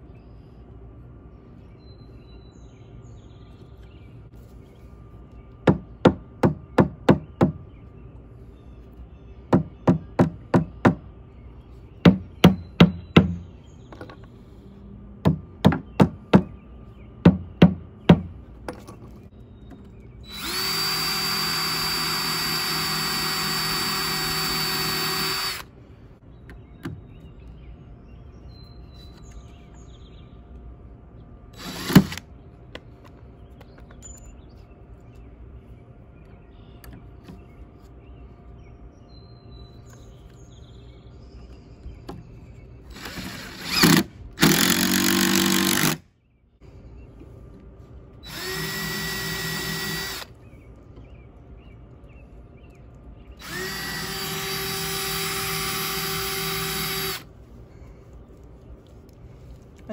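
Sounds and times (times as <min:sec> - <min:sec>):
hammer striking wood: 0:05.6 - 0:07.6, 0:09.5 - 0:11.0, 0:12.0 - 0:13.4, 0:15.2 - 0:16.5, 0:17.2 - 0:18.3
cordless drill running: 0:20.3 - 0:25.7, 0:31.6 - 0:32.2, 0:42.9 - 0:46.0, 0:48.2 - 0:50.4, 0:53.4 - 0:57.3.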